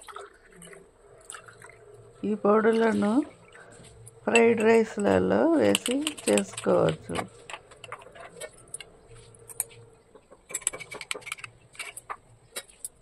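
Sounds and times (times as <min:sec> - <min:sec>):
glass tumblers clicking on steel: 0:04.0 - 0:09.8, 0:10.4 - 0:13.0.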